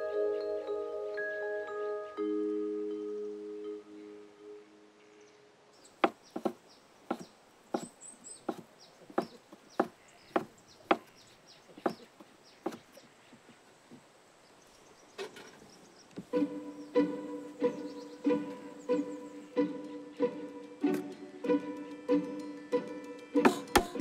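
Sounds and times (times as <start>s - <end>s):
cleaver chopping on wooden board: 6.0s - 7.9s, 8.5s - 11.1s, 23.5s - 24.0s
plucked string music: 16.2s - 24.0s.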